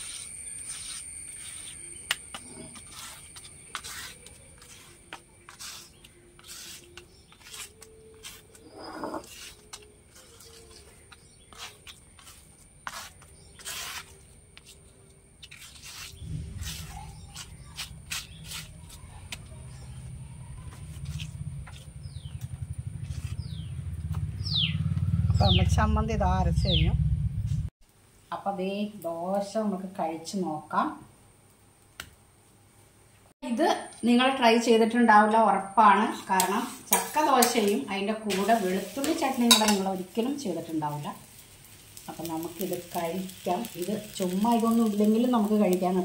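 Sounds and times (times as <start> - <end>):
stone roller grinding paste: 0.0 - 19.8, 20.6 - 23.5
low rumble: 16.2 - 27.7.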